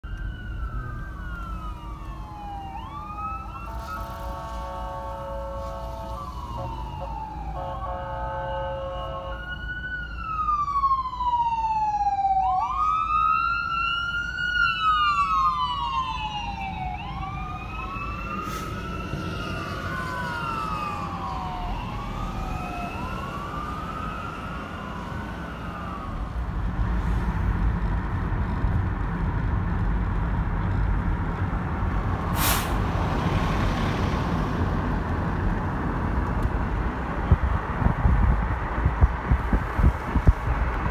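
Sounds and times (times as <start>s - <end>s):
siren wailing: 0.0s - 26.4s
traffic noise: 0.0s - 40.9s
fire engine horn blasts: 3.6s - 9.5s
wind noise: 26.1s - 40.9s.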